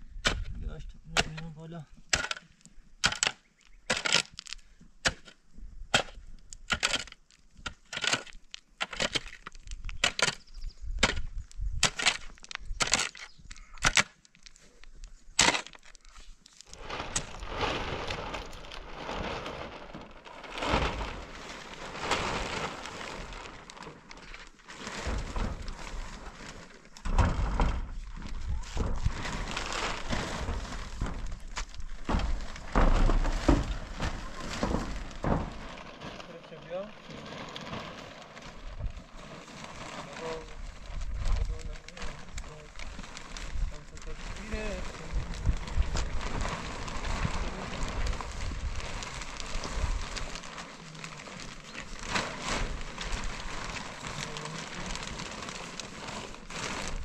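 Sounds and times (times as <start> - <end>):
shovel scraping stony soil: 3.0 - 4.4, 5.0 - 14.2, 15.3 - 15.9
uneven rustling crackle: 6.4 - 57.0.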